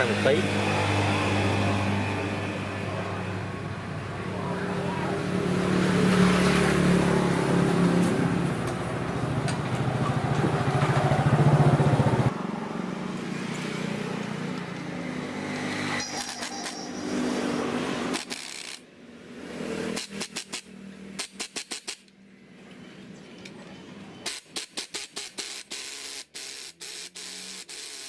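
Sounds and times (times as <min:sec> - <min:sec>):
loud engine-like drone: 0:00.0 - 0:18.2
power screwdriver bursts: 0:16.0 - 0:17.0, 0:18.1 - 0:18.8, 0:24.2 - 0:28.0.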